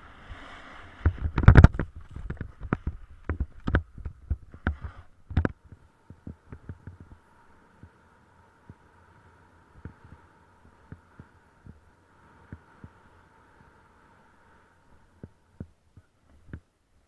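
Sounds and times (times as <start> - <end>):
faint steady hum: 0.0 - 17.0
snowboard thumping over bumps: 0.9 - 7.2.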